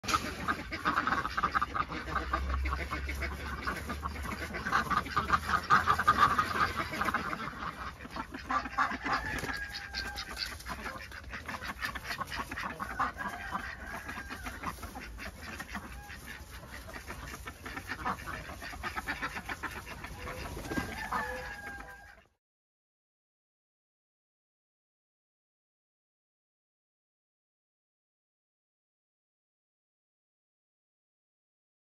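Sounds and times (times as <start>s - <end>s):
ducks quacking: 0.0s - 22.4s.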